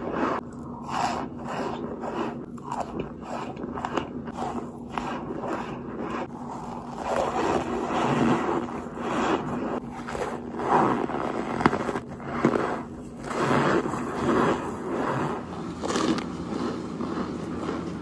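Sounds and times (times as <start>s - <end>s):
crisp crunching and chewing: 0.5s - 5.7s, 15.7s - 18.0s.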